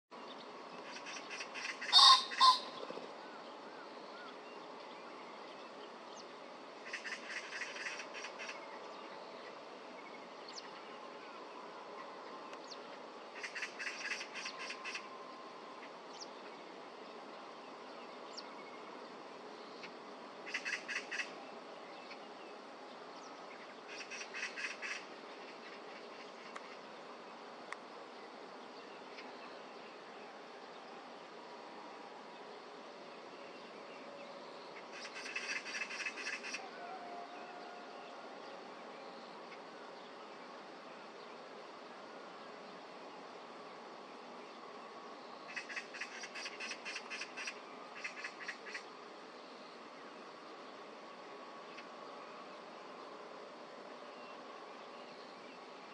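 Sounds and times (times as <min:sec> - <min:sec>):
pheasant harsh calls: 0:00.8 - 0:03.0, 0:13.4 - 0:15.1, 0:19.8 - 0:21.4, 0:23.9 - 0:26.8, 0:34.8 - 0:37.7, 0:45.5 - 0:48.9.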